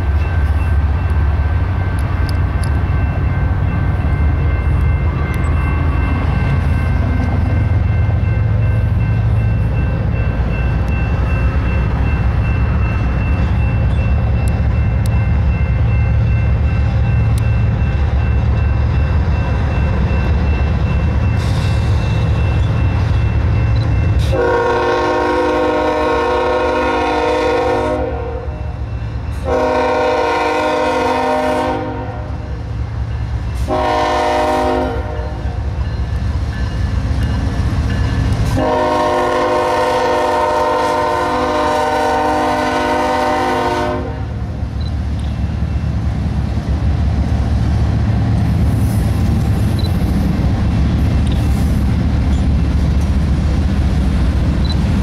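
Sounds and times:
diesel locomotive rumble: 0.0 - 55.0
train air horn blast: 24.2 - 28.6, 29.4 - 32.5, 33.6 - 35.5, 38.5 - 44.4.

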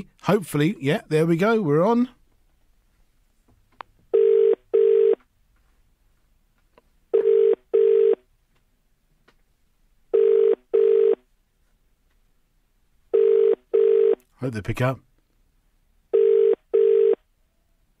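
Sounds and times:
telephone ringing tone: 4.1 - 5.2, 7.1 - 8.2, 10.1 - 11.2, 13.1 - 14.2, 16.1 - 17.2.

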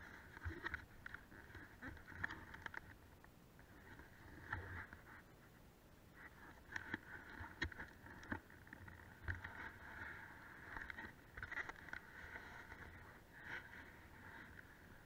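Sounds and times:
low hiss: 0.0 - 8.3.

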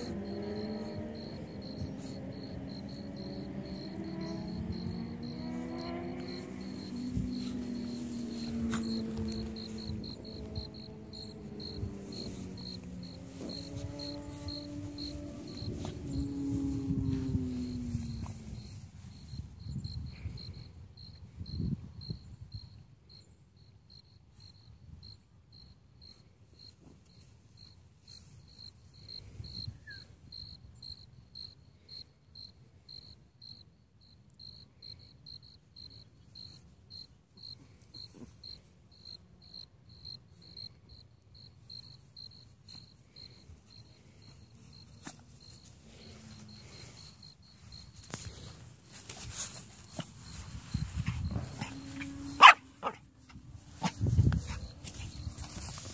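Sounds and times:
faint low rumble: 0.0 - 21.6
cricket chirping: 0.0 - 55.9.

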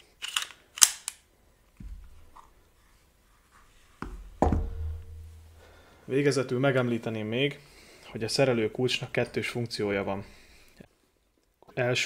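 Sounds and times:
magazine clicking into pistol: 0.2 - 1.3
soft low thump: 4.0 - 5.6.

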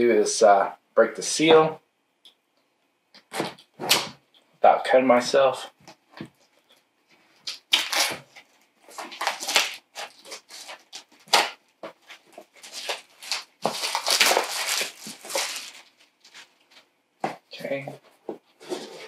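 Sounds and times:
plastic shrink-wrap crackling and tearing: 7.4 - 11.6, 12.4 - 16.5.

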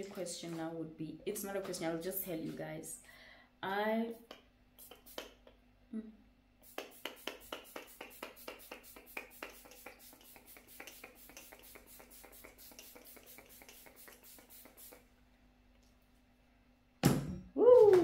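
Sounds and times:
spray bottle hissing sprays: 4.8 - 5.5, 6.6 - 15.1.

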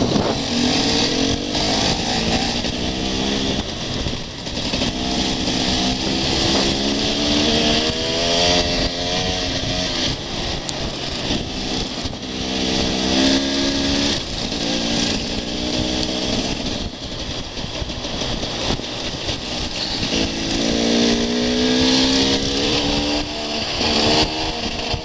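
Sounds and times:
dirt bike engine accelerating: 0.0 - 25.0.

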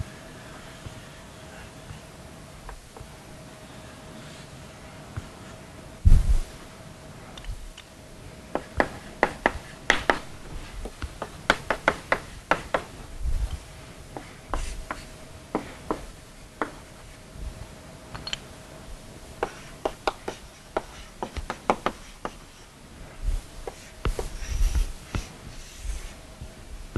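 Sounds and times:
faint steady hum: 0.0 - 26.9
chalk on blackboard: 14.1 - 16.8, 19.4 - 22.7, 23.6 - 26.2.

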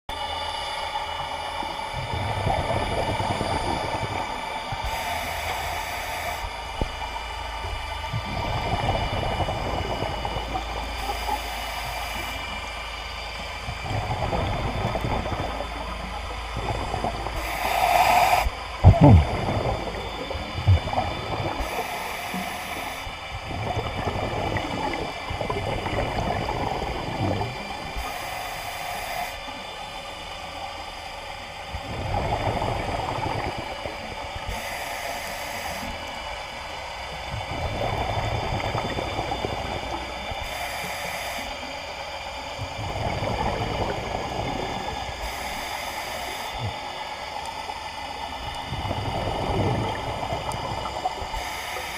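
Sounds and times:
bubbling exhalation underwater: 2.0 - 4.5, 13.6 - 21.8, 23.4 - 27.9
regulator hissing inhalation: 16.6 - 23.2.

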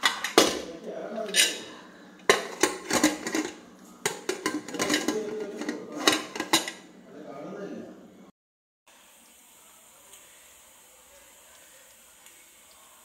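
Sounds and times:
metal lid clinking and knocking: 0.0 - 0.7, 2.3 - 6.9.

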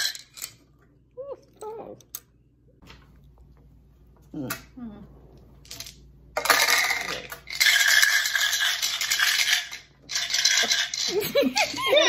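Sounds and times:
dice rattling in plastic cup: 5.7 - 11.2.

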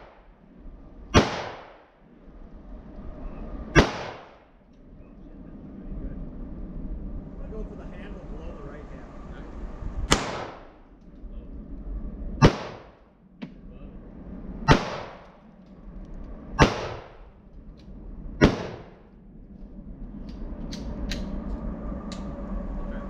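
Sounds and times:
gunshots echoing: 1.1 - 1.8, 3.7 - 4.4, 10.1 - 10.7, 12.4 - 12.9, 14.7 - 15.2, 16.6 - 17.2, 18.4 - 19.0.

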